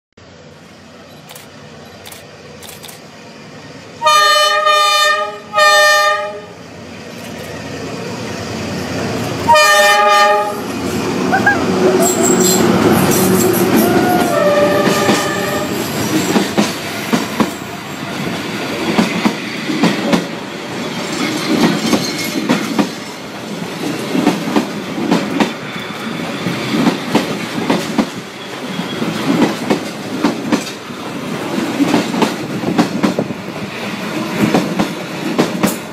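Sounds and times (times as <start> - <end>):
train carriages rolling past: 0.2 - 35.9
train horn blasts: 4.0 - 6.6, 9.5 - 10.7, 13.8 - 15.9
clickety-clack of wheels on rails: 6.9 - 35.9.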